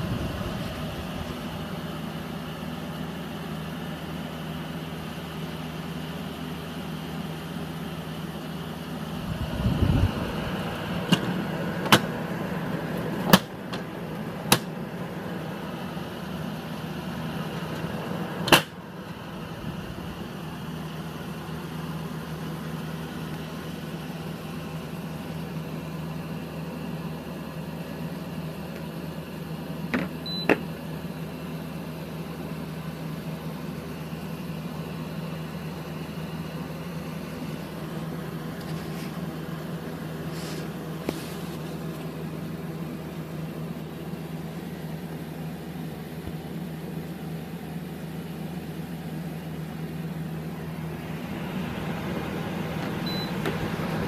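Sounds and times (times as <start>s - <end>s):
air conditioner humming: 0.0s - 54.0s
short beep: 53.0s - 53.4s.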